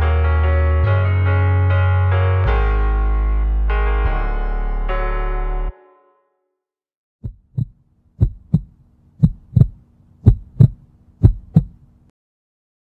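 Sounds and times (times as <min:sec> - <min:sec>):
heartbeat thumps: 0:07.2 - 0:11.8.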